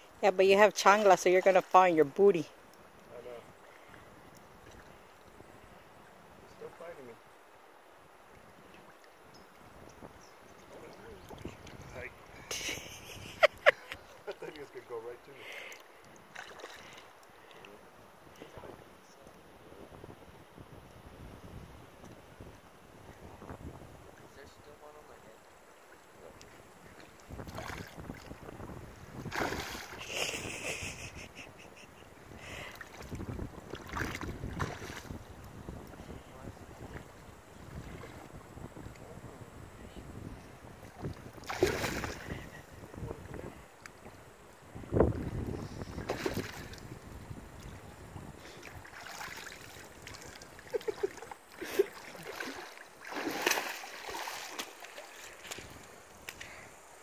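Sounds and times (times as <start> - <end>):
wading through shallow water: 0.8 - 7.0, 8.1 - 18.6, 25.2 - 57.0
fish thrashing water: 29.2 - 30.3, 33.7 - 35.1, 41.4 - 42.4, 46.0 - 46.8, 48.8 - 55.7.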